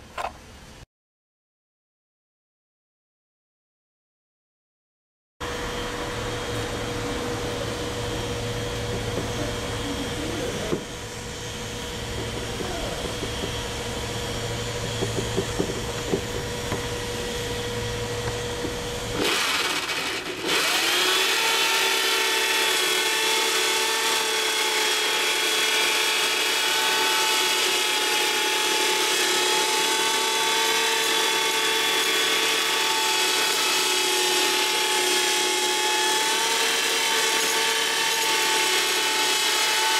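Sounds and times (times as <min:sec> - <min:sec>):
electric drill grinding coating: 0:05.4 - 0:39.9
steady low hum: 0:05.5 - 0:19.2.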